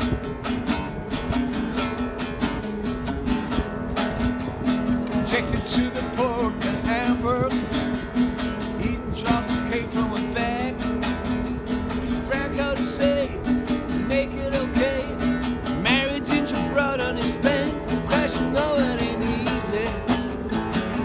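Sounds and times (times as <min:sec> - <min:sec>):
acoustic guitar strumming: 0:00.0 - 0:21.0
man's wordless singing: 0:05.2 - 0:08.0, 0:08.6 - 0:11.0, 0:12.1 - 0:20.5.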